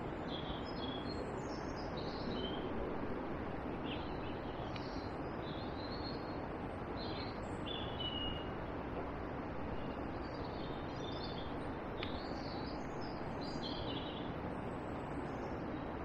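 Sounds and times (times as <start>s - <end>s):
songbird singing: 0.0s - 2.7s, 3.8s - 8.6s, 9.6s - 16.0s
outdoor background rush: 0.0s - 16.0s.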